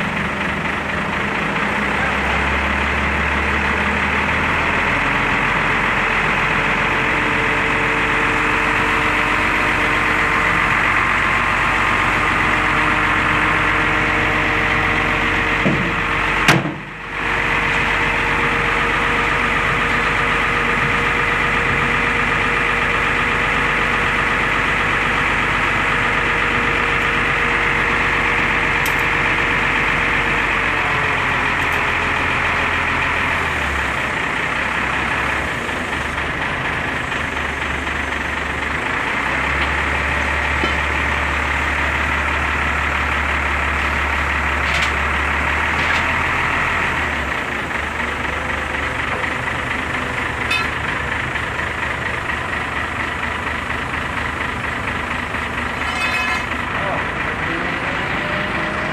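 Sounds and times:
forklift engine running: 0:00.0 - 0:58.9
steady whine: 0:49.0 - 0:53.2.

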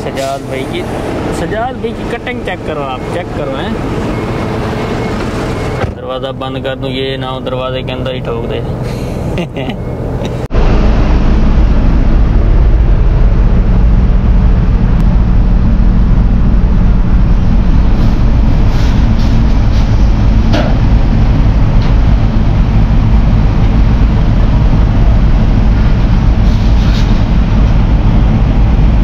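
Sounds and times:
truck engine running: 0:00.0 - 0:29.0.

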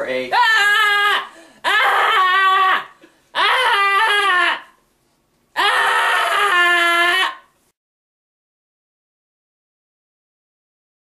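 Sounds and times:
person wailing: 0:00.3 - 0:04.8, 0:05.6 - 0:07.5.

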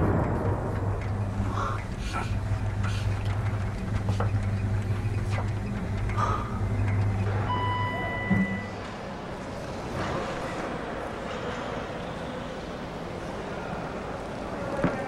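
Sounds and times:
vehicle low hum: 0:00.0 - 0:09.9
electronic beep: 0:07.5 - 0:08.8.

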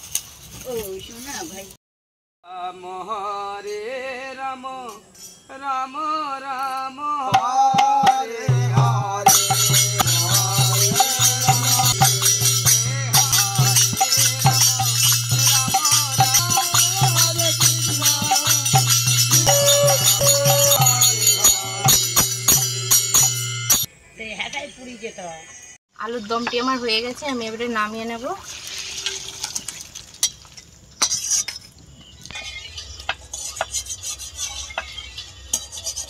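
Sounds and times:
men singing folk song: 0:02.5 - 0:22.9
barrel drum beats: 0:07.3 - 0:23.9
jingling hand cymbals: 0:09.2 - 0:23.9.

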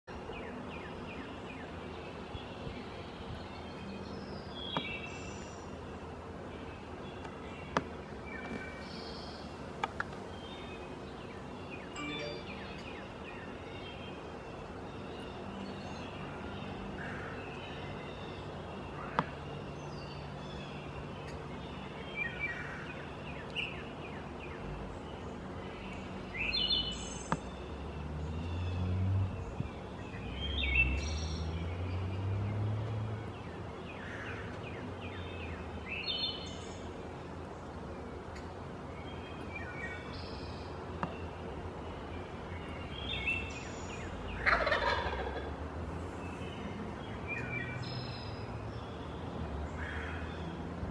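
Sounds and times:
small birds chirping: 0:00.1 - 0:50.9
turkey gobbling: 0:44.4 - 0:45.5.

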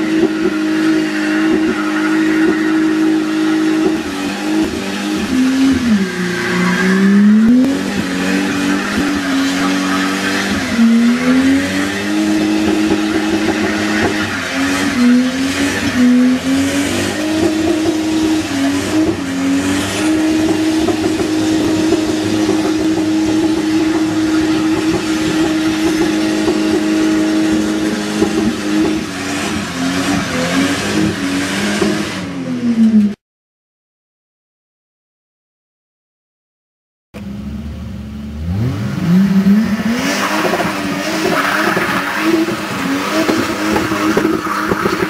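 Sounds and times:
car engine revving: 0:00.0 - 0:33.2, 0:37.2 - 0:45.0
tyres squealing: 0:00.4 - 0:31.7.

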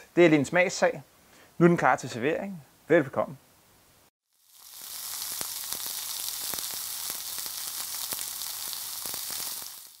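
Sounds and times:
meat sizzling on a grill: 0:04.2 - 0:10.0
fat crackling and popping: 0:04.4 - 0:10.0.

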